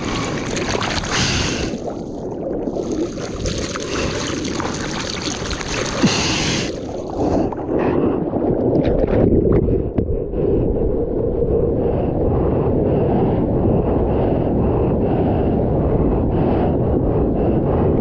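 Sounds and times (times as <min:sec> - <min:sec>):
water rushing along surfboard: 0:00.0 - 0:08.1
whitewater splashing over microphone: 0:00.0 - 0:10.0.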